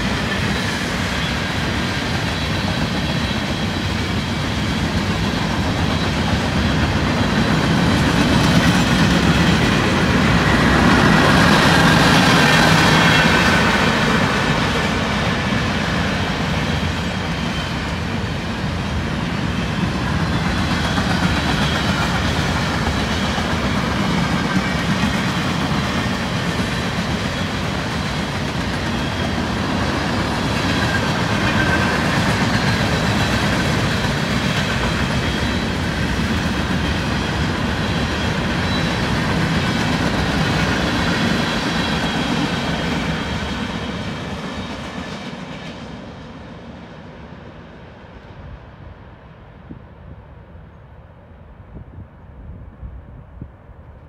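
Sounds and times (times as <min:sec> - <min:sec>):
train wheels rolling on rails: 0:00.0 - 0:48.8.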